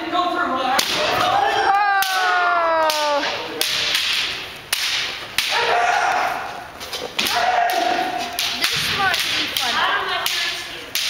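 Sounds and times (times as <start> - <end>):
bamboo sword strikes cracking: 0.8 - 1.2, 2.0 - 6.2, 7.2 - 11.0
long falling martial arts shout: 1.4 - 3.4.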